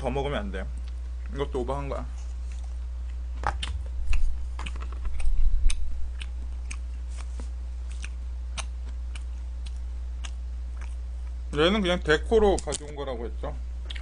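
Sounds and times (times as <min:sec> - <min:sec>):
steady low hum: 0:00.0 - 0:14.0
chewing: 0:02.2 - 0:11.4.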